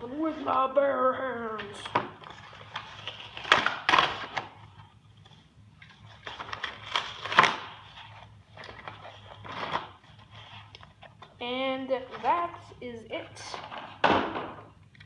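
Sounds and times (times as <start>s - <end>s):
cardboard packaging rustling and clicking: 1.4s - 11.4s.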